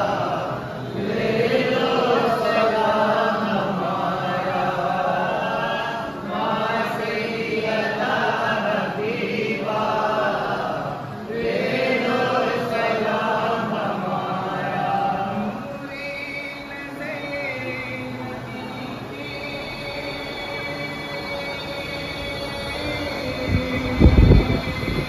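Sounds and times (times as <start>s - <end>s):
men chanting in unison: 0.0s - 20.6s.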